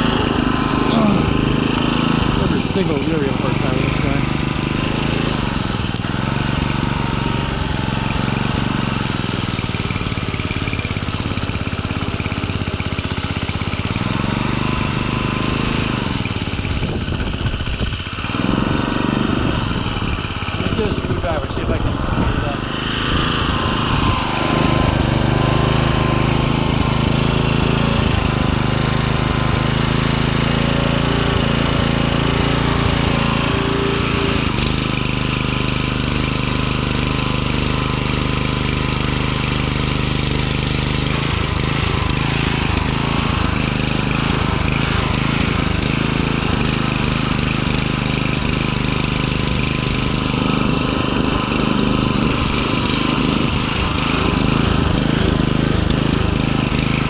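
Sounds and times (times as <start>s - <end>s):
garden tiller engine running: 0.0s - 57.0s.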